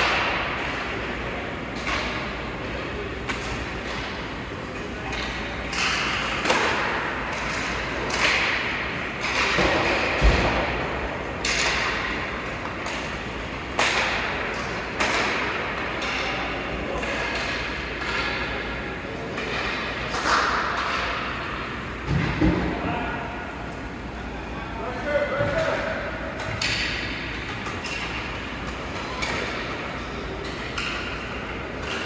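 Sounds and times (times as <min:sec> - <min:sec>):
hockey sticks hitting puck: 0:00.0 - 0:04.4, 0:05.0 - 0:23.0, 0:25.3 - 0:32.0
puck hitting boards: 0:13.8 - 0:16.3.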